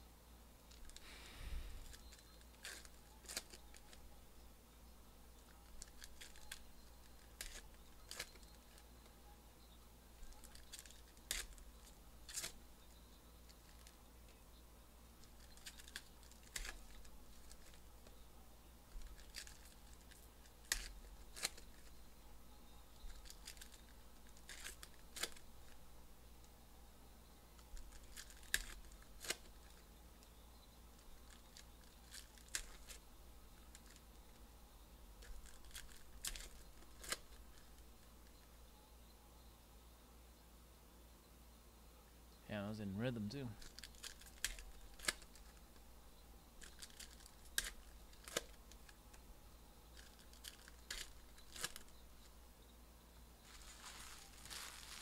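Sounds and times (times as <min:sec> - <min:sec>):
card pack wrappers crinkling: 0:01.7 - 0:04.0, 0:05.4 - 0:08.9, 0:10.2 - 0:12.6, 0:15.2 - 0:18.2, 0:18.9 - 0:22.0, 0:23.0 - 0:25.8, 0:27.6 - 0:29.8, 0:31.0 - 0:33.0, 0:35.2 - 0:37.8, 0:43.6 - 0:45.6, 0:46.6 - 0:49.0, 0:49.9 - 0:52.0, 0:53.4 - 0:55.0
cards snapping: 0:01.8 - 0:04.0, 0:05.5 - 0:08.9, 0:10.2 - 0:11.6, 0:12.3 - 0:12.6, 0:15.2 - 0:18.2, 0:18.9 - 0:21.9, 0:23.0 - 0:25.4, 0:27.6 - 0:29.8, 0:31.1 - 0:33.0, 0:35.2 - 0:37.7, 0:43.6 - 0:45.6, 0:46.6 - 0:49.0, 0:49.9 - 0:51.9.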